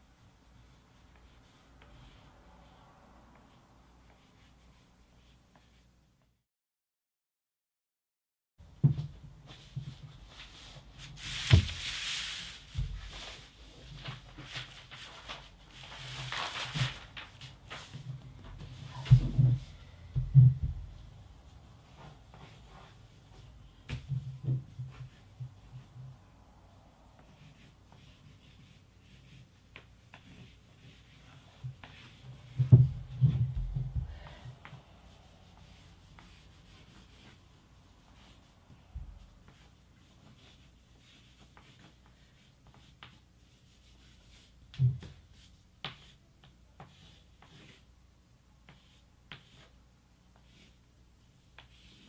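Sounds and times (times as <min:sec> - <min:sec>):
pencil scratching on paper: 0:00.5 - 0:02.8, 0:27.2 - 0:32.6, 0:34.6 - 0:38.8, 0:39.4 - 0:44.6, 0:45.3 - 0:47.9, 0:48.6 - 0:52.0
paper rustling: 0:11.2 - 0:18.1.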